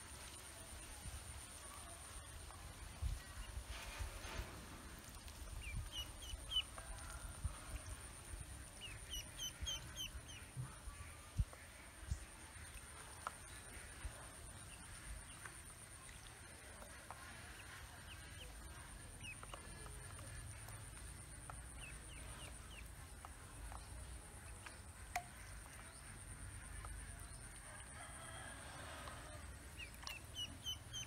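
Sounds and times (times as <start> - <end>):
ducklings peeping: 5.6 - 6.8, 8.7 - 10.5, 16.9 - 23.8, 29.7 - 31.0.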